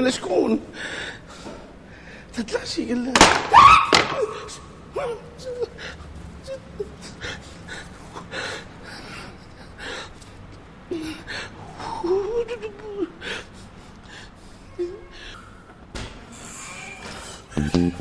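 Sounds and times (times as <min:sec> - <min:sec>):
man moaning: 0:16.7 - 0:18.0.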